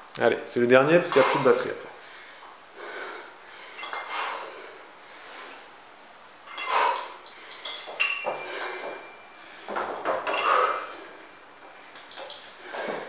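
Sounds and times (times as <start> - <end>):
shoe squeaks: 12.1 - 13.0.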